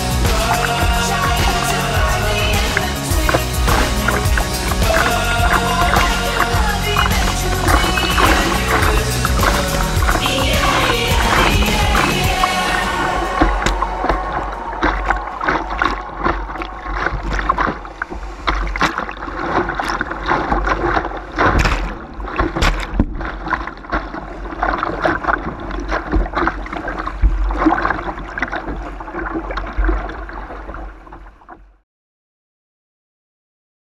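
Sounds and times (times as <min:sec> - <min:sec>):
low rumble: 0:00.0 - 0:23.2
rushing water: 0:00.0 - 0:31.6
water splashing against kayak hull: 0:00.0 - 0:31.8.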